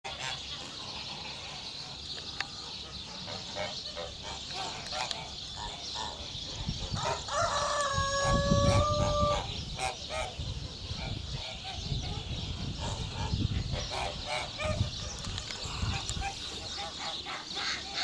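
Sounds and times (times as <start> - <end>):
geese and fowl calling: 0.1 - 18.0
rooster crowing: 7.2 - 9.5.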